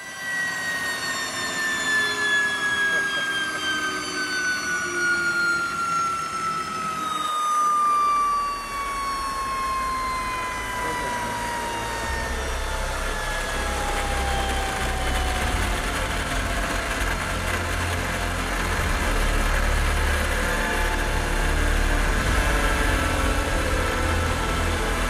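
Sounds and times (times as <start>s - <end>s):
turbine whine falling in pitch: 0.0s - 25.0s
deep low rumble: 8.2s - 25.0s.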